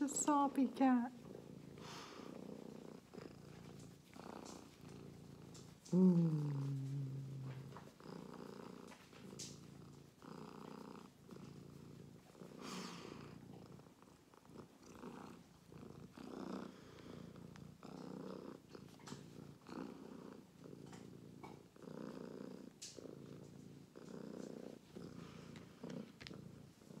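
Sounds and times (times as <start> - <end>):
cat purring: 0.0 - 27.0.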